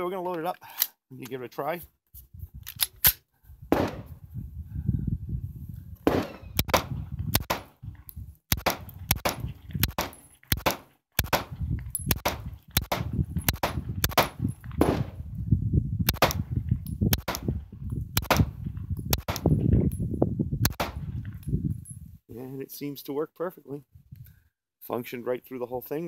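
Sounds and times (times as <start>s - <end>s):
pistol shots: 3.7s - 4.1s, 6.1s - 7.7s, 8.5s - 15.2s, 16.1s - 16.4s, 17.2s - 17.5s, 18.2s - 18.5s, 20.7s - 21.1s.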